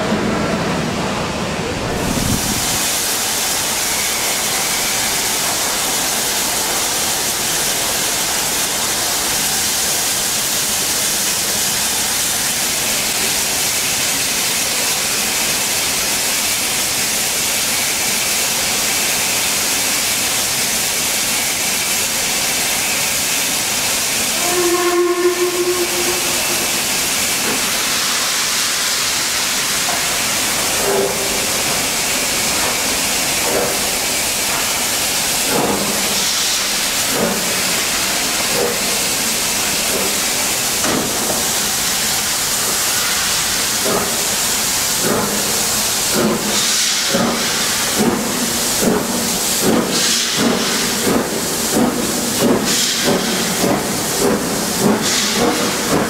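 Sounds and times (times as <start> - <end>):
steam hissing: 1.1 - 56.0
low steam whistle: 24.3 - 28.6
short whistle toot: 24.4 - 26.8.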